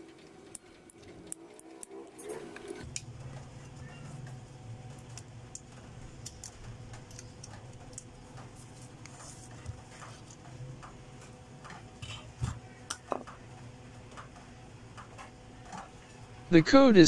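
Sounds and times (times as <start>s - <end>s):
faint clicks and taps: 5.0s - 16.1s.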